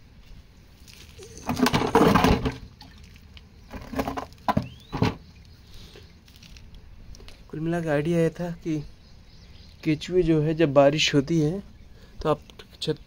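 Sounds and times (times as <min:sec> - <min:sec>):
plastic container scraping on concrete: 0:01.2 - 0:02.8, 0:03.7 - 0:05.2.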